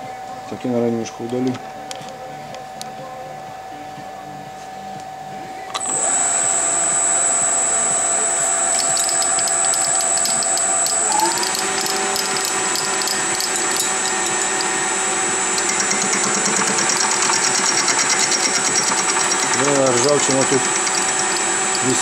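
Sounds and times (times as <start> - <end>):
metal lathe whine: 5.7 - 22.0.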